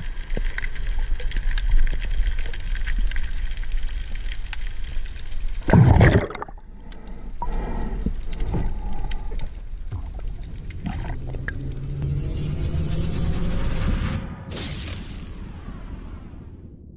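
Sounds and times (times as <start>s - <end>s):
watery crackles and clicks: 0.0s - 12.0s
muffled underwater rush: 5.4s - 12.0s.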